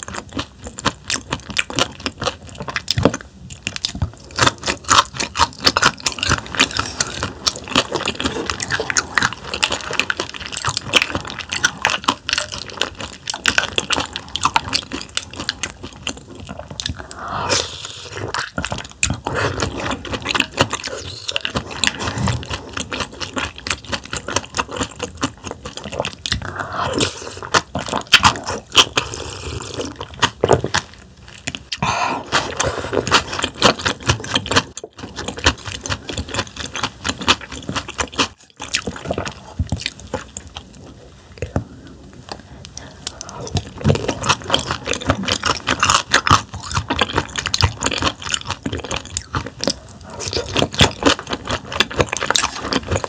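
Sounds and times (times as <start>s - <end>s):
wet chewing and mouth clicks: 0.0s - 53.0s
slurping: 16.8s - 23.2s, 25.8s - 30.9s.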